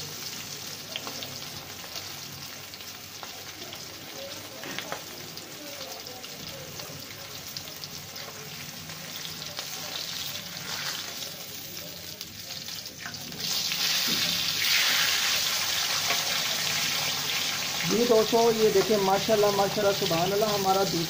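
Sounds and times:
chicken sizzling in hot oil: 0.0 - 21.0.

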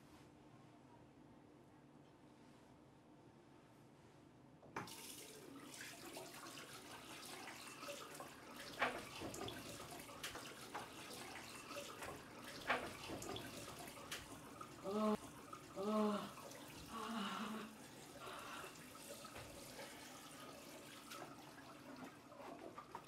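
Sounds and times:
water running into sink: 4.8 - 23.0.

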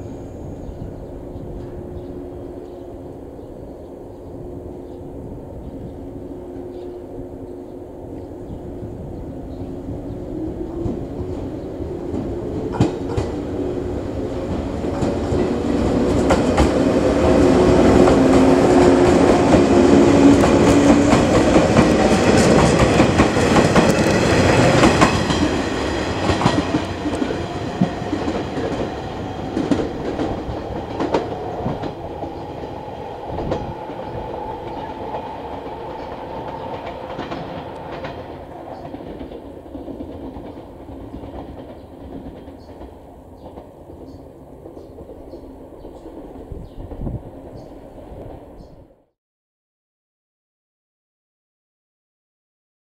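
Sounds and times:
wheels clicking over rail joints: 18.0 - 32.4.

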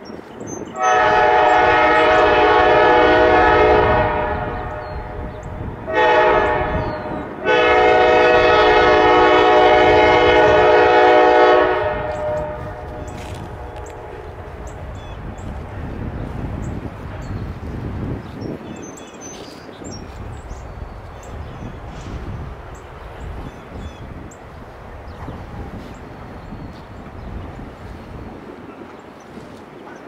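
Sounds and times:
low train rumble: 0.0 - 30.0
locomotive air horn blasts: 0.7 - 14.8.

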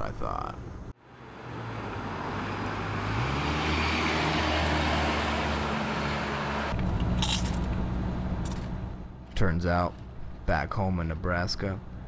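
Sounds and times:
car driving past: 1.1 - 6.8.

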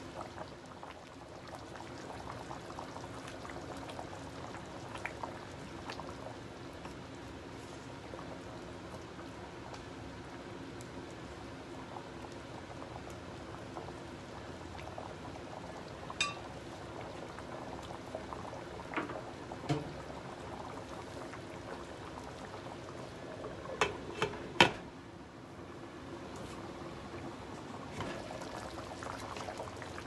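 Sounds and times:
sauce bubbling in a frying pan: 0.0 - 30.0
glass lid clinking: 16.2 - 16.4.

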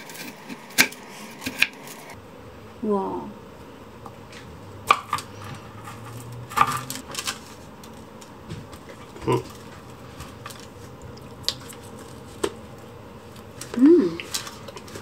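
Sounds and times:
chocolate and nuts cracking: 4.8 - 15.0.

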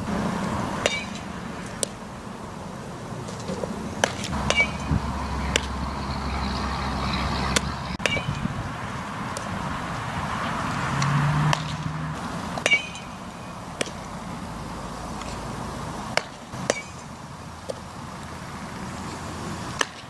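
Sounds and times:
passing vehicle rumble: 0.0 - 20.0
bat hitting ball with ping: 0.8 - 2.0, 4.0 - 5.8, 7.5 - 8.4, 11.0 - 12.0, 12.6 - 14.1, 16.1 - 17.8, 19.8 - 20.0.

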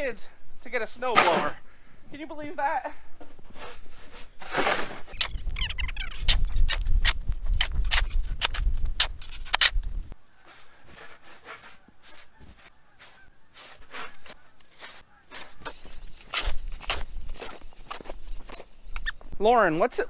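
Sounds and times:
plastic shovel scraping snow: 3.5 - 5.2, 10.4 - 18.1
shovel squeaks: 3.6 - 8.6, 10.4 - 19.4.

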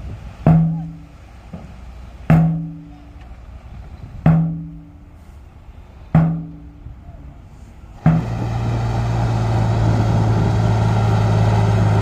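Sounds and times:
deep pitched drum hits: 0.4 - 2.9, 4.2 - 5.0, 6.1 - 6.8, 8.0 - 8.9.

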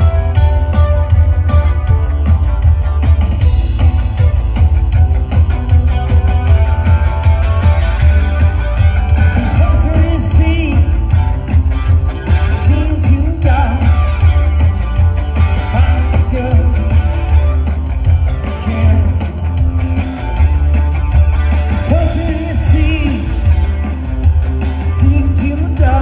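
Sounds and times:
heavy bass line: 0.0 - 26.0
live rock band playing: 0.0 - 26.0
person singing: 9.1 - 11.3, 12.3 - 14.6, 15.6 - 17.7, 18.4 - 19.8, 21.8 - 23.8, 24.8 - 26.0.

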